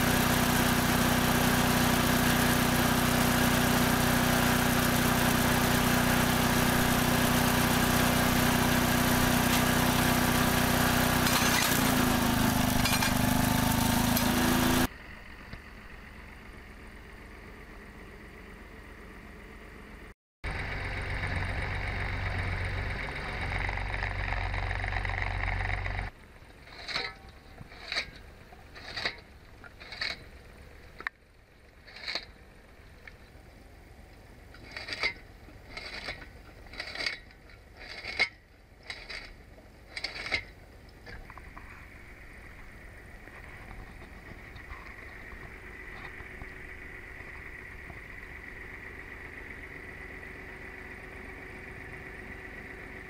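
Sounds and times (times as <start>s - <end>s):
cutter spinning with steady hum: 0.0s - 15.8s, 34.1s - 53.0s
tractor engine running: 0.0s - 53.0s
firewood cutter chopping branches: 0.2s - 14.9s, 34.6s - 40.6s.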